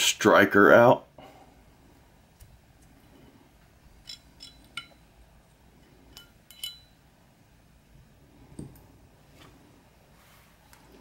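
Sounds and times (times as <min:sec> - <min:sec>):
metallic clicks and clinks: 0:04.0 - 0:05.1, 0:06.1 - 0:07.0.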